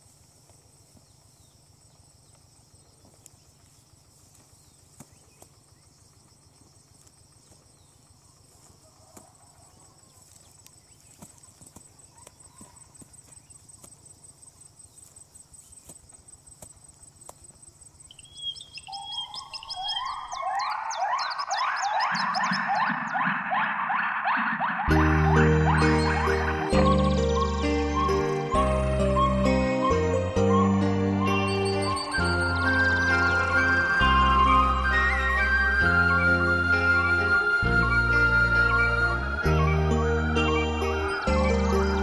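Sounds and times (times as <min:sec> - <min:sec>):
insects chirring: 0:00.0 - 0:42.0
sliding music tones: 0:22.0 - 0:42.0.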